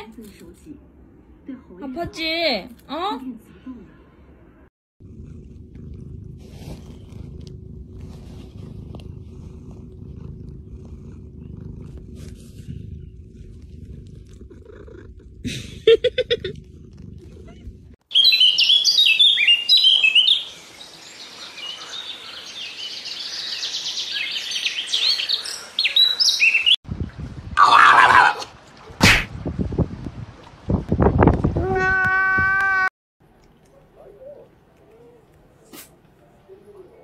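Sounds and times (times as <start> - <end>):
cat purring: 5.0 - 18.0
songbirds chirping: 18.1 - 27.1.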